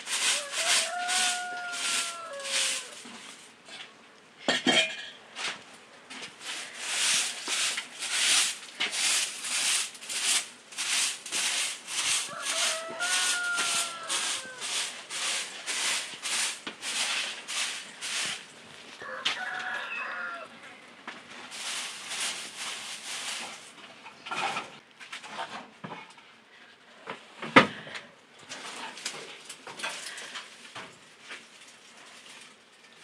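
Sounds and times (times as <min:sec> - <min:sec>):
rhythmic scraping strokes: 0:00.0 - 0:03.5, 0:06.3 - 0:18.5, 0:21.4 - 0:23.8
chicken clucking: 0:00.1 - 0:03.0, 0:12.0 - 0:17.0, 0:19.0 - 0:20.8.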